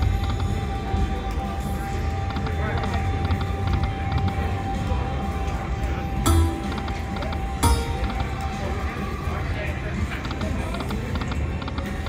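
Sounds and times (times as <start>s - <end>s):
slot machine game music: 6.3s - 8.6s
steady held tone: 6.3s - 8.6s.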